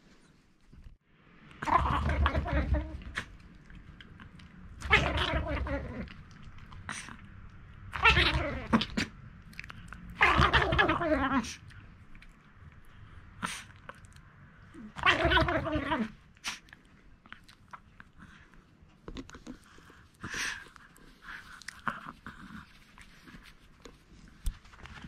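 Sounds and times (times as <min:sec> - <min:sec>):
loud pitched dog vocal sound: 0:04.8 - 0:06.2, 0:07.9 - 0:09.2, 0:10.2 - 0:11.7, 0:14.8 - 0:16.7
dog chewing and crunching: 0:16.4 - 0:25.0.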